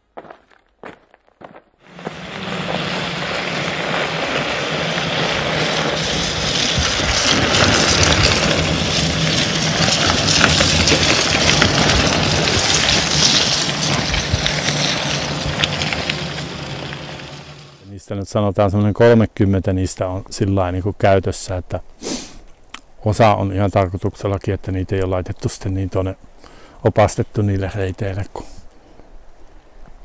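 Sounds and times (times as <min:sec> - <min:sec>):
wind: 0:00.0 - 0:30.0
rain: 0:01.9 - 0:17.8.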